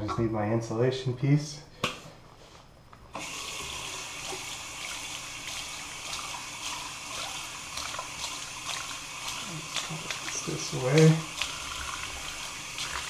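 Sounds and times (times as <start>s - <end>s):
water running from a tap: 3.2s - 13.0s.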